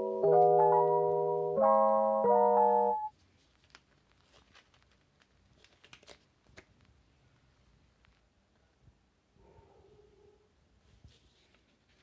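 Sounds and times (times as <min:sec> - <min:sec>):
background music chords: 0:00.0 - 0:03.1
paper rustling and crinkling: 0:03.1 - 0:06.9, 0:11.0 - 0:12.0.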